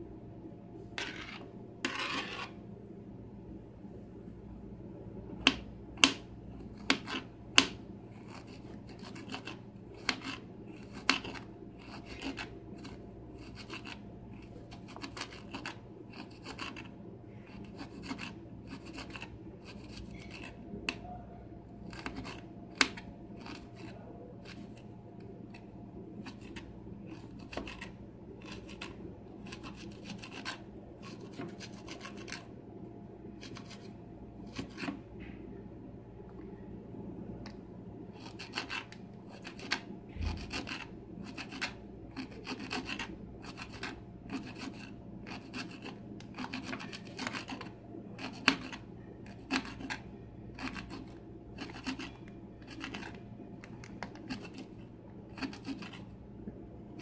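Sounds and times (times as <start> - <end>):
knife cutting on wooden tray: 1.0 - 2.6, 6.8 - 14.0, 26.2 - 28.9, 50.6 - 53.2, 55.3 - 56.1.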